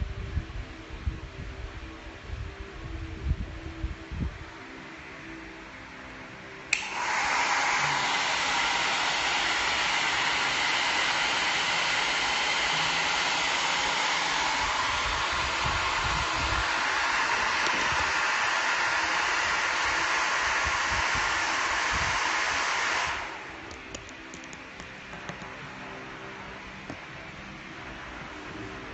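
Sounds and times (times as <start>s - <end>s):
hair dryer blowing: 6.7s - 24.6s.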